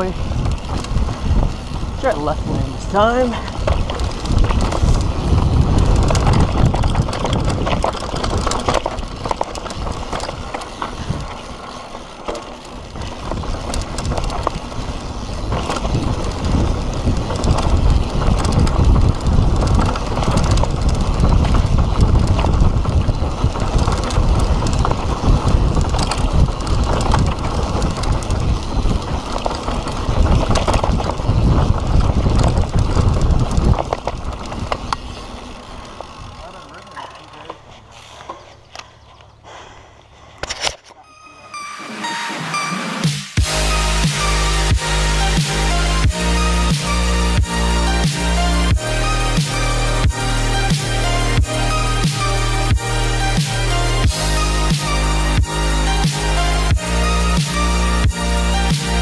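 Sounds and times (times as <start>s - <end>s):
wind buffeting microphone: 0.0s - 36.4s
bike rattling clicks: 0.0s - 39.4s
bike tyres rumbling over dirt: 0.0s - 39.4s, 43.4s - 59.0s.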